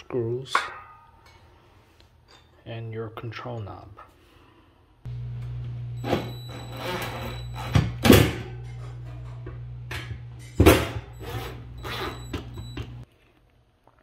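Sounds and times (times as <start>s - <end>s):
drill motor whirring: 11.0s - 13.0s.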